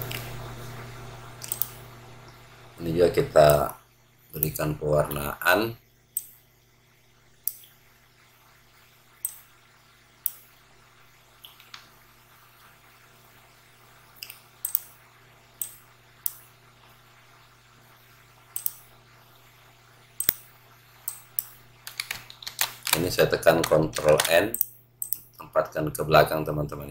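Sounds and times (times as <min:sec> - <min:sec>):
faint low hum: 0:00.0 - 0:26.9
computer mouse clicking: 0:01.4 - 0:01.8, 0:07.4 - 0:07.7, 0:14.2 - 0:14.9, 0:18.6 - 0:18.9, 0:20.2 - 0:20.4, 0:21.1 - 0:25.3.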